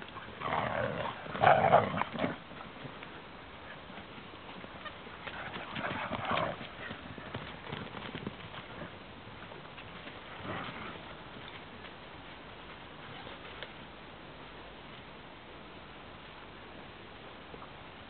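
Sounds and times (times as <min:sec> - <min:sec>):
dogs tussling: 0:04.6 - 0:09.0.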